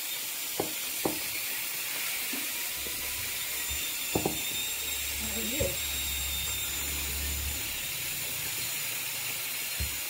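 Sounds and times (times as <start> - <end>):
steady hiss: 0.0 - 10.0
rolling pin rolling dough: 1.0 - 8.8
rolling pin knocking on board: 4.1 - 4.6.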